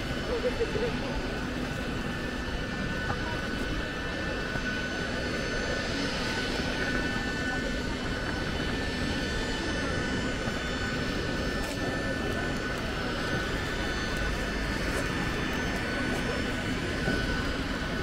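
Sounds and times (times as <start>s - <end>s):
jet aircraft whine: 0.0s - 18.0s.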